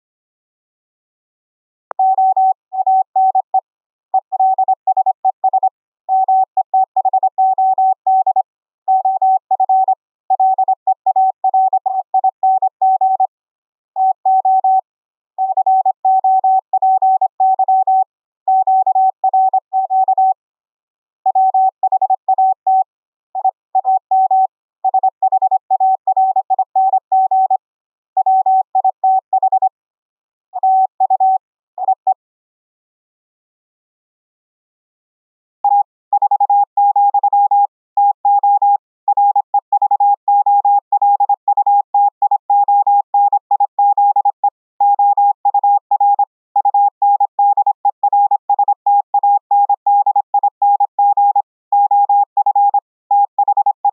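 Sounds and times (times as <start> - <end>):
morse code tone: 49.6 - 53.9.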